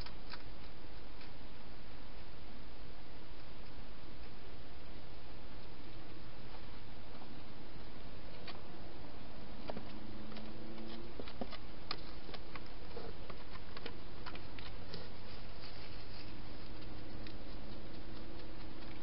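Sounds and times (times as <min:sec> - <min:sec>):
steady hiss: 0:11.7 - 0:19.0
hedgehog clicks and taps: 0:16.6 - 0:19.0.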